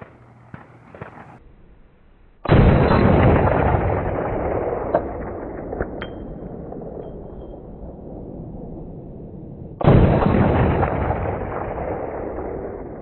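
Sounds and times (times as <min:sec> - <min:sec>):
rifle shot: 0:00.0 - 0:01.4, 0:02.4 - 0:13.0
light metallic pings: 0:06.0 - 0:07.6.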